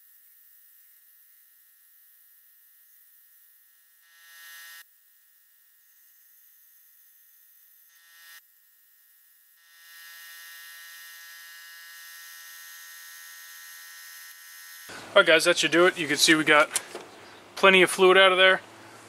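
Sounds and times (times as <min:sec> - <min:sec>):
air tool hissing and buzzing: 0:00.0 - 0:15.2.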